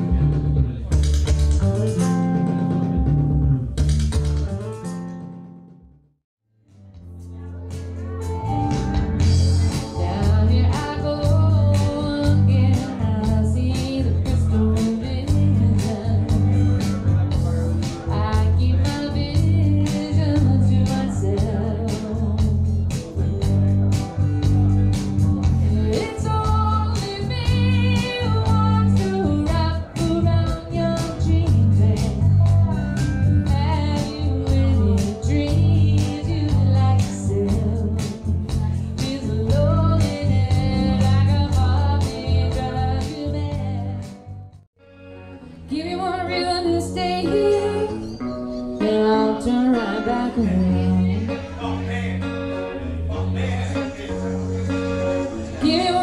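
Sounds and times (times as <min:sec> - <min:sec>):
bass guitar low notes: 0:00.0 - 0:05.5, 0:06.7 - 0:44.7, 0:46.6 - 0:56.0
guitar: 0:00.0 - 0:05.9, 0:06.7 - 0:56.0
woman singing: 0:09.6 - 0:16.7, 0:18.0 - 0:22.8, 0:25.6 - 0:44.2, 0:45.6 - 0:48.2, 0:48.8 - 0:51.4, 0:55.5 - 0:56.0.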